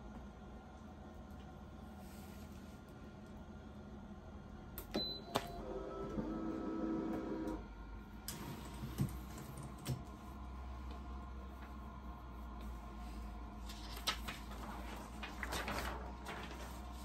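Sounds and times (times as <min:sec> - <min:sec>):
heat press steady tone: 0:00.0 - 0:08.7.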